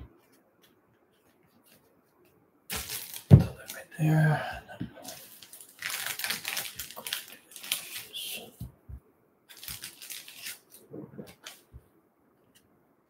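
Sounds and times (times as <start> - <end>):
crinkly foil pack rustling: 2.7 - 3.9, 5.0 - 8.5, 9.5 - 11.7.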